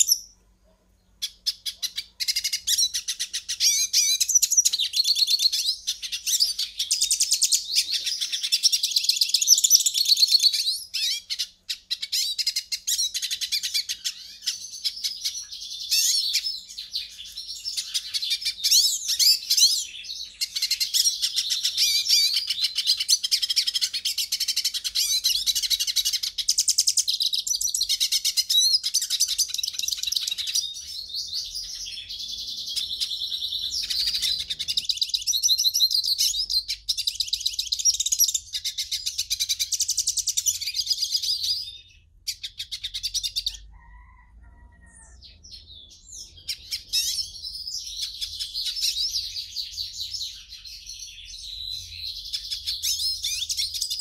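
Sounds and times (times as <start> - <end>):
goldfinch twittering song: 1.2 - 43.7.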